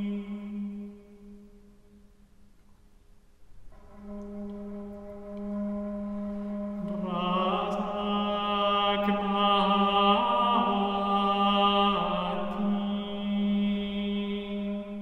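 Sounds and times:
chant-like melody: 0.0s - 1.5s, 3.7s - 15.0s
low drone: 3.7s - 11.0s.

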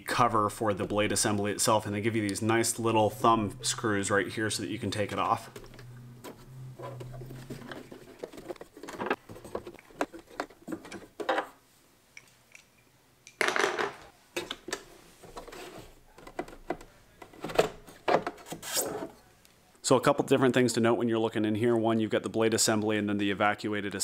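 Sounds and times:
parts clicking and scraping: 4.8s - 11.6s.

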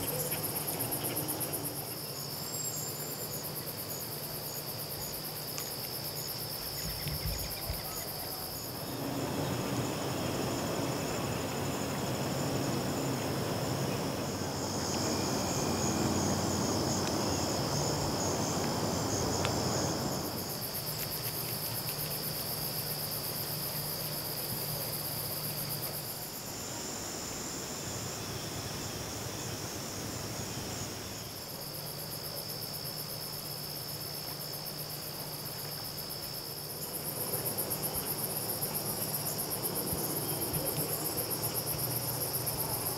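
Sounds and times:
crickets trilling: 0.0s - 42.9s
high pulsing insect chirp: 0.0s - 42.9s
broad rushing noise: 8.7s - 20.5s.

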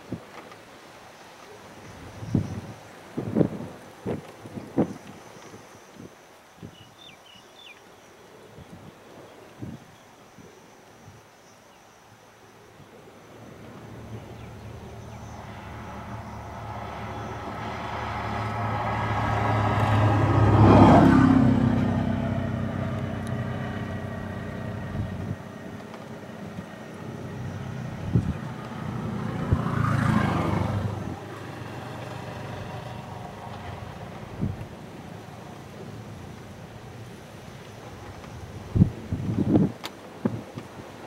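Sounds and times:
motor vehicle passing by: 13.4s - 37.5s.

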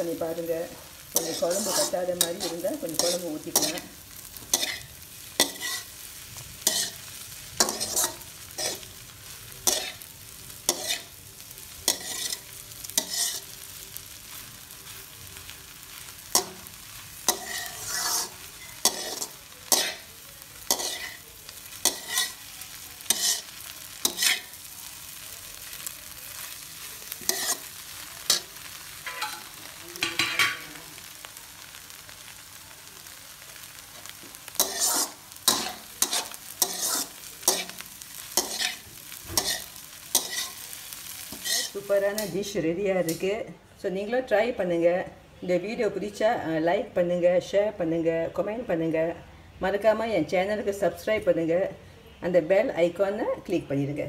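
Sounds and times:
faint frying sizzle: 0.0s - 54.0s
metal spatula scraping a wok: 0.1s - 15.0s, 15.9s - 24.7s, 25.8s - 30.7s, 34.0s - 43.3s.

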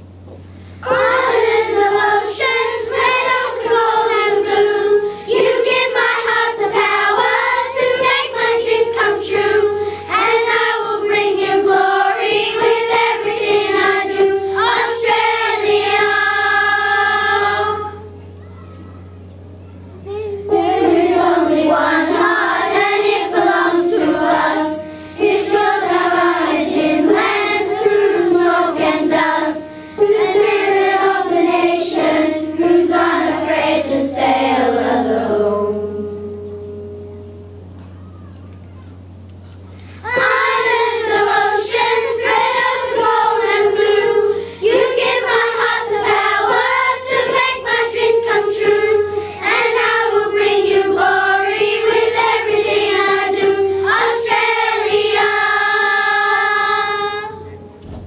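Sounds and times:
children's choir singing: 0.8s - 19.0s, 20.1s - 37.4s, 40.0s - 57.8s.

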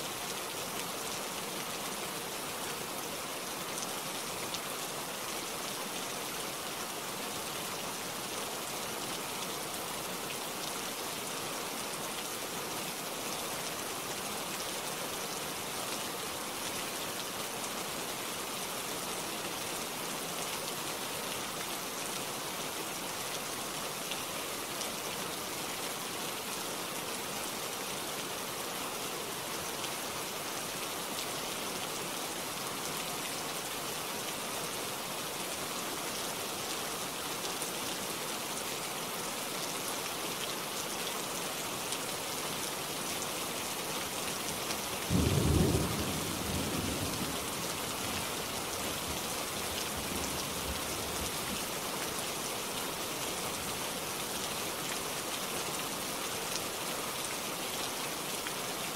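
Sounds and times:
steady rain falling: 0.0s - 58.9s
low rumble of thunder: 45.1s - 47.5s.

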